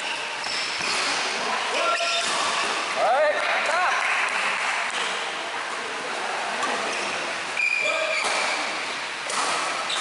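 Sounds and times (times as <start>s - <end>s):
shoes squeaking on court floor: 0.0s - 1.2s, 1.8s - 2.8s, 9.3s - 10.0s
racket striking shuttlecock: 0.4s - 1.3s, 9.2s - 10.0s.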